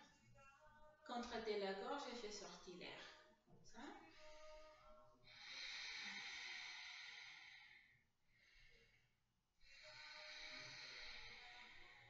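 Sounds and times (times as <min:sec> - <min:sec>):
person breathing through the nose: 0:04.2 - 0:08.9, 0:09.6 - 0:12.0.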